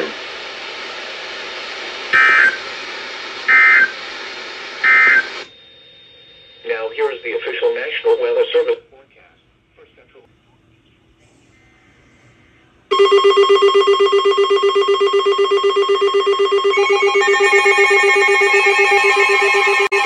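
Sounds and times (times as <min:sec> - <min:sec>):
overlapping alarm tones: 0:02.2 - 0:02.6, 0:03.5 - 0:04.0, 0:04.8 - 0:05.5, 0:12.9 - 0:20.0
pulsing alarm tone: 0:02.2 - 0:02.6, 0:03.5 - 0:04.0, 0:04.8 - 0:07.9, 0:12.9 - 0:20.0.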